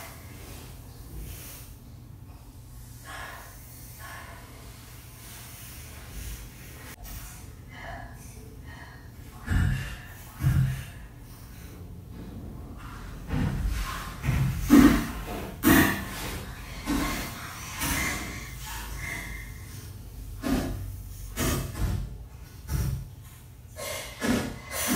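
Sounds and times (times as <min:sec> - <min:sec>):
woman breathing hard and gasping: 0:13.3 - 0:21.8.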